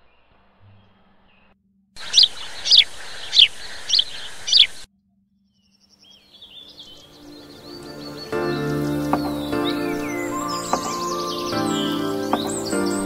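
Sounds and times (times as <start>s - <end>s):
faint bird chirps: 0.0s - 4.9s, 5.5s - 13.0s.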